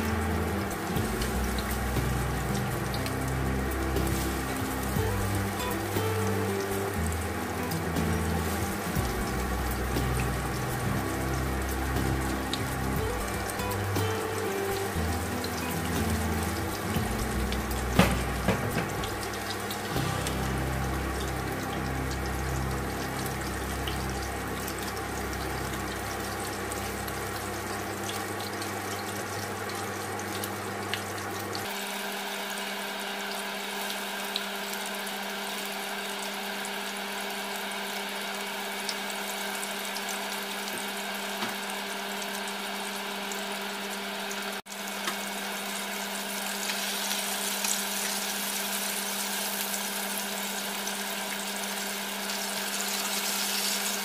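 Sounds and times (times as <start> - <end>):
constant hum: 0.0 - 31.2
water boiling in pots: 0.0 - 54.0.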